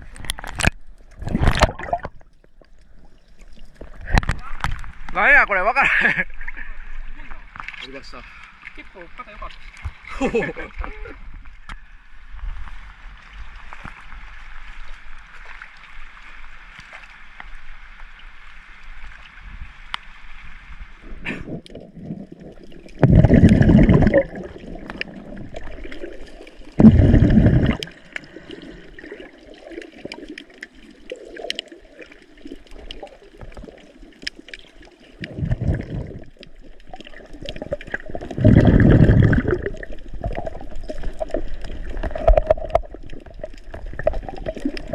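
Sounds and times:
water trickling and gurgling: 0:00.0 - 0:05.2, 0:05.8 - 0:44.9
loud water rushing bursts: 0:23.0 - 0:24.8, 0:26.8 - 0:27.9, 0:35.2 - 0:36.3, 0:38.1 - 0:40.6.

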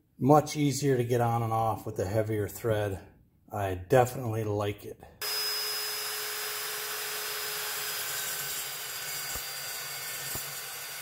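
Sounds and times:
chop saw cutting steel: 0:05.2 - 0:11.0.

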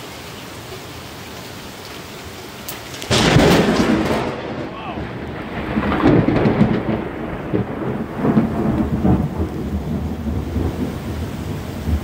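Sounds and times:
heavy rain: 0:00.0 - 0:12.0
thunder rumbling: 0:03.0 - 0:12.0.

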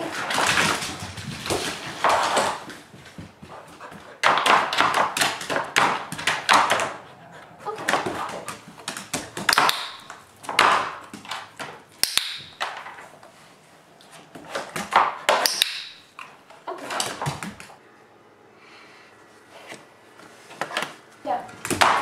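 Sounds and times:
dog nails clicking on wood floor: 0:00.0 - 0:07.1, 0:07.7 - 0:13.1
dog paws tapping on plastic: 0:00.0 - 0:07.1, 0:07.7 - 0:13.3.

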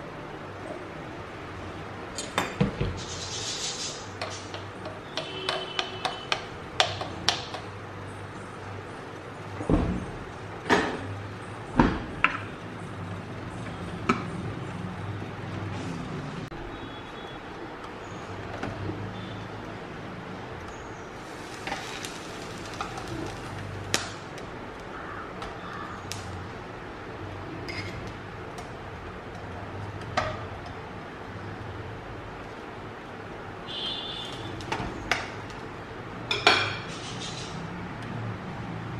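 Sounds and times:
dishes and cutlery clinking: 0:27.7 - 0:28.0.

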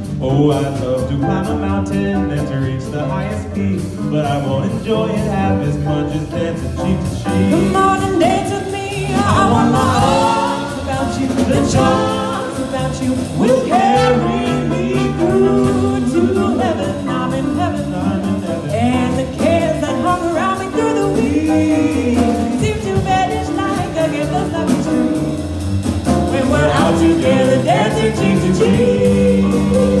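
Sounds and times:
drums: 0:00.0 - 0:30.0
man and woman singing jazz: 0:00.0 - 0:30.0
upright bass: 0:00.0 - 0:30.0.

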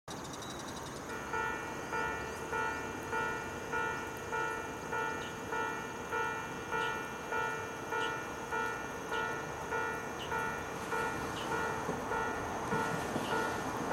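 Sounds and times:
level crossing warning bell: 0:00.6 - 0:13.9.

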